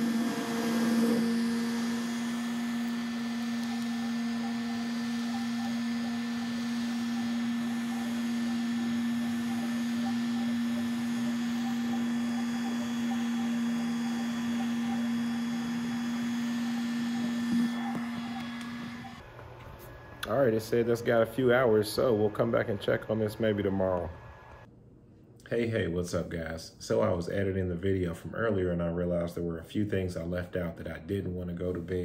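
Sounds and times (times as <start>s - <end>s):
fluttering motor: 0.0s - 19.2s
printer humming: 0.0s - 24.7s.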